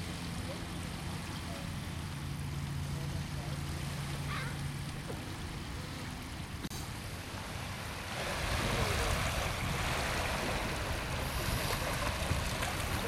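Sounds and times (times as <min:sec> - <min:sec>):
small waves breaking on sand: 0:00.0 - 0:13.0
wind rumbling on microphone: 0:03.9 - 0:13.0.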